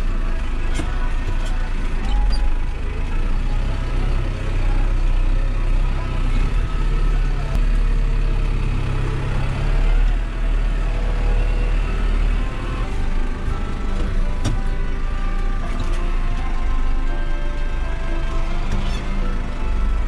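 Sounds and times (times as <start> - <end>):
tractor diesel engine droning: 0.0 - 20.0.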